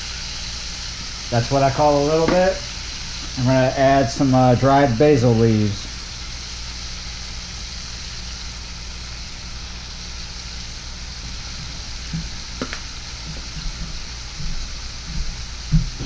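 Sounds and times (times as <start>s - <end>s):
fish sizzling in oil: 0.0s - 16.0s
oil popping and ticking: 8.8s - 16.0s.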